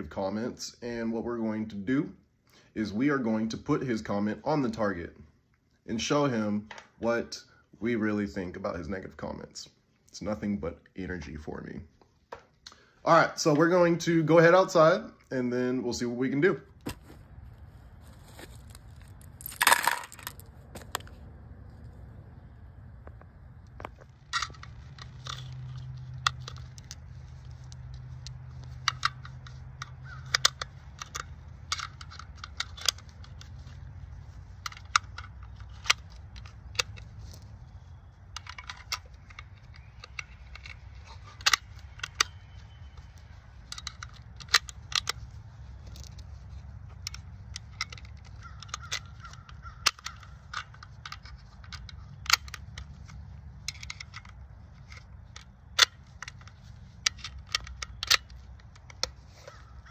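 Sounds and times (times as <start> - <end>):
steady low rumble: 16.7 - 59.9
sharp clicks and knocks: 23.0 - 59.9.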